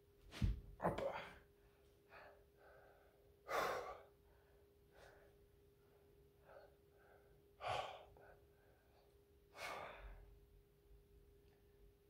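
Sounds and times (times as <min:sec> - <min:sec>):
faint steady hum: 0:00.0 - 0:12.0
person breathing heavily: 0:02.0 - 0:10.3.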